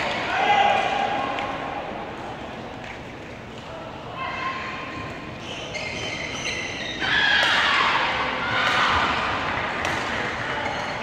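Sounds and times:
indoor hall noise: 0.0 - 11.0
shoe squeaks: 5.4 - 7.2.

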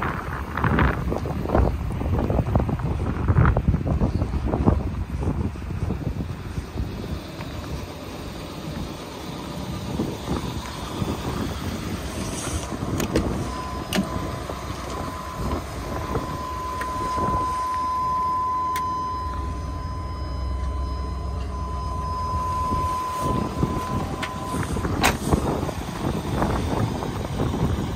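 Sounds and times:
low rumble: 0.0 - 27.9
dashboard warning tone: 13.0 - 25.1.

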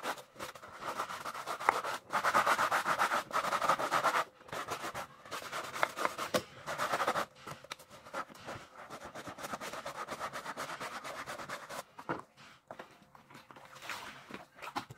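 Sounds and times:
brush scrubbing wet shoe: 0.0 - 7.3, 8.0 - 11.8.

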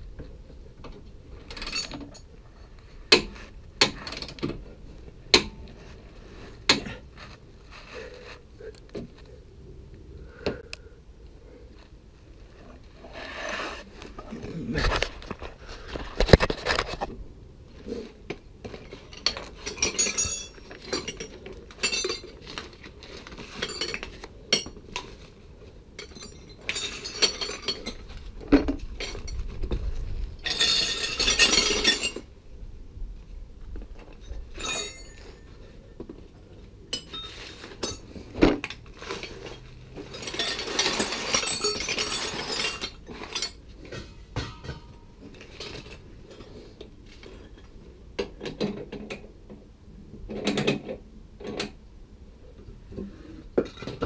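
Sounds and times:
tools rattling: 1.4 - 2.3, 18.8 - 25.4, 26.0 - 29.5, 30.4 - 32.3, 34.2 - 35.5, 36.9 - 46.5
metal hand tools clinking: 19.2 - 22.4, 26.0 - 28.1, 34.6 - 35.5, 36.9 - 38.1, 39.1 - 44.9.

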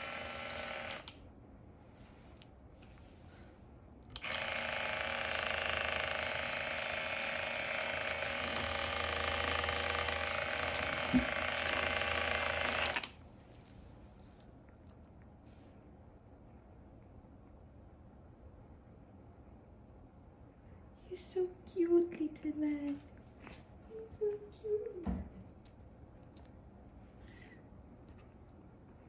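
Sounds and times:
electric motor buzzing: 0.0 - 1.1, 4.2 - 13.1.

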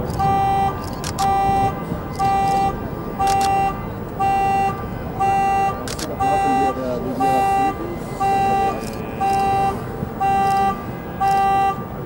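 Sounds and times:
car alarm horn beeping: 0.2 - 12.0.

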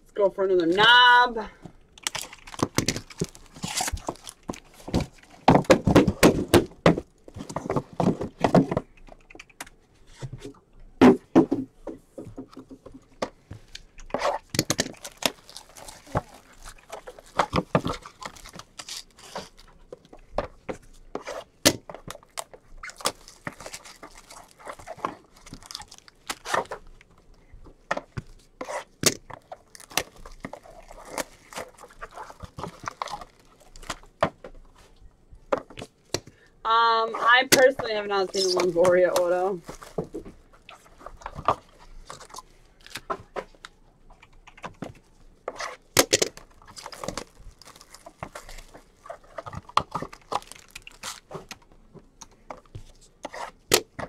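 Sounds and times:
cardboard scraping and rustling: 2.5 - 8.9.

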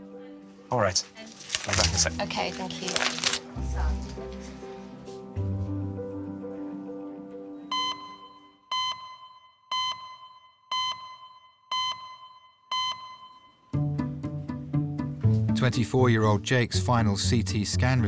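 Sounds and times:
background music: 0.0 - 8.9, 12.7 - 18.0.

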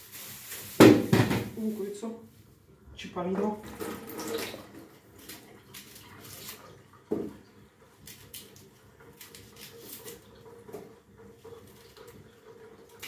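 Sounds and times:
hands peeling an onion: 5.2 - 6.7, 8.0 - 10.3.

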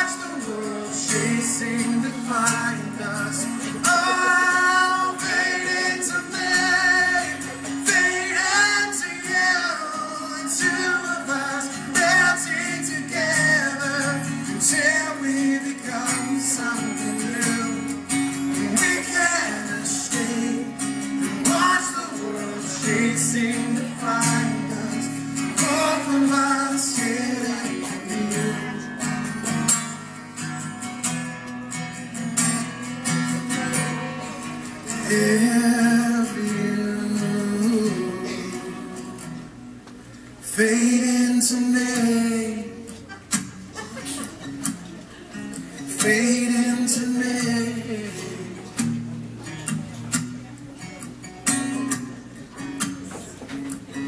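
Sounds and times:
man singing a ballad: 0.0 - 29.2, 34.9 - 39.4, 40.4 - 43.0, 45.9 - 48.7
guitar accompaniment: 0.0 - 54.0.

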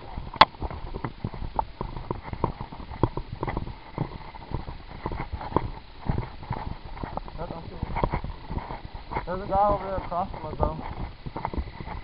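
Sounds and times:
footsteps on straw and dirt: 0.0 - 12.0.

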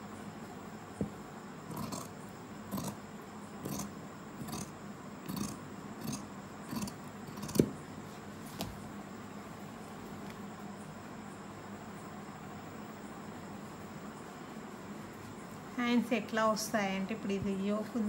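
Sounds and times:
scissors snipping cloth: 6.8 - 7.7.

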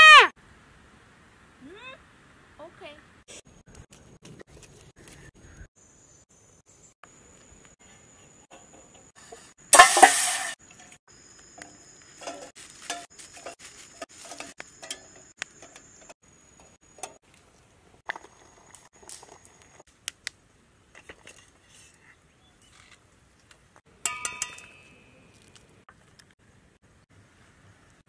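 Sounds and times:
eggs clinking against steel pot: 24.0 - 25.0.

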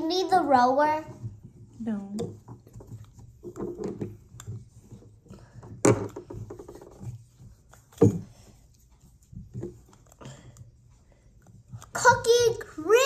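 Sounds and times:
handling dough and toys: 0.0 - 13.0
plastic toys knocking on wood: 2.2 - 4.7, 5.6 - 7.0.

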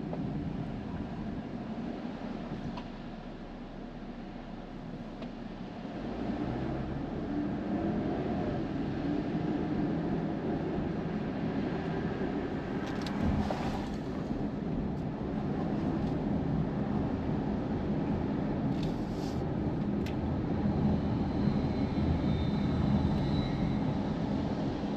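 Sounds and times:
car engine and tyre rumble: 0.0 - 24.9.

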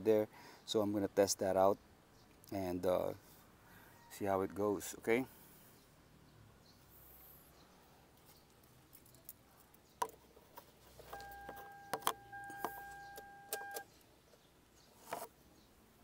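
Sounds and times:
handling clicks and rattles: 8.2 - 13.9
electronic beep tone: 11.2 - 13.9.

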